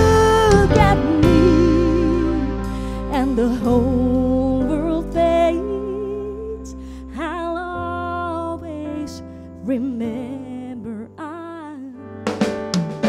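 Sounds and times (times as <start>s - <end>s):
bass notes: 0.0s - 9.0s
woman singing a ballad: 0.0s - 12.2s
keyboard chords: 0.0s - 13.0s.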